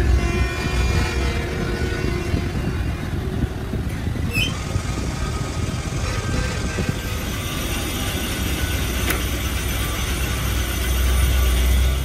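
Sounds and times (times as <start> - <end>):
grinding machine running: 4.0 - 12.0
high squeak: 4.3 - 4.6.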